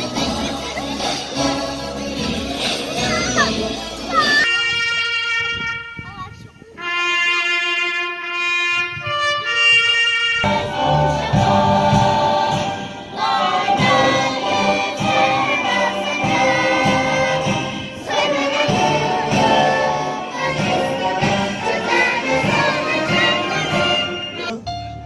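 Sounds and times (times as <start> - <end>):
instrumental backing with bass: 0.0 - 25.0
choir singing: 10.4 - 24.6.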